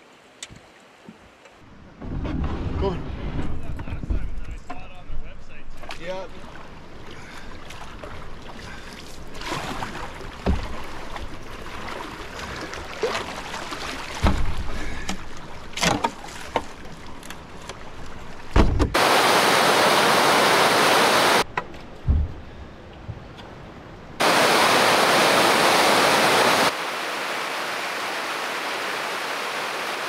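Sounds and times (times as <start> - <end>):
paddle splashing through water: 5.8 - 21.4
paddle knocking: 10.4 - 11.3
loud rush of water: 18.9 - 21.4, 24.2 - 30.0.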